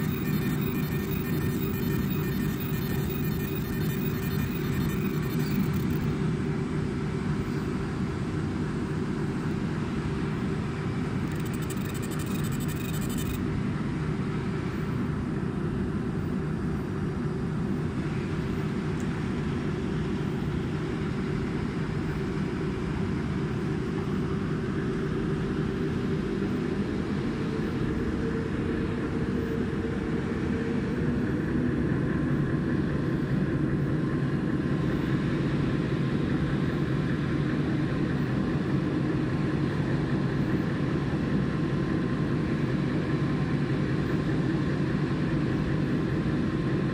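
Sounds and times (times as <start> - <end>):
cooling fans humming: 0.0 - 7.1, 9.8 - 13.6.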